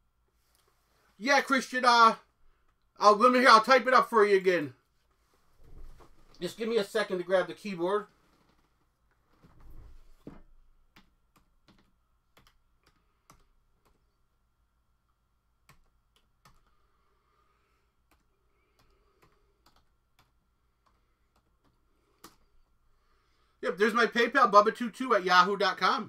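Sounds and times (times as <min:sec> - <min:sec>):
keyboard typing clicks: 0:18.1 - 0:22.4.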